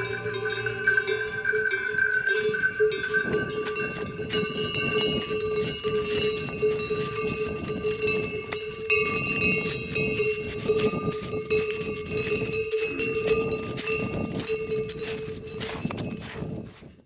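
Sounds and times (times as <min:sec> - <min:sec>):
neck bells clanking: 0:00.0 - 0:16.7
hooves tramping on snow: 0:00.0 - 0:17.0.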